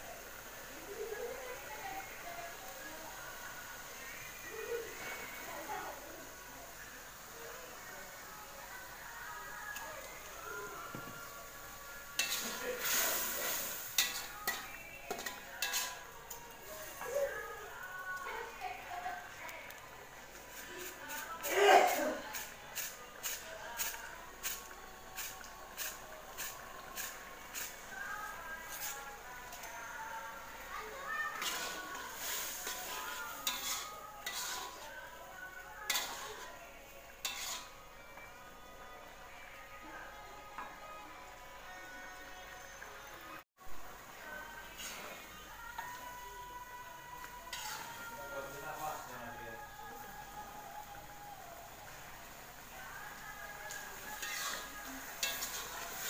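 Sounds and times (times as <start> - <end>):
ladle stirring and scraping wok: 11.4 - 17.8, 20.2 - 38.3, 44.5 - 46.2, 47.2 - 49.1, 53.4 - 56.0.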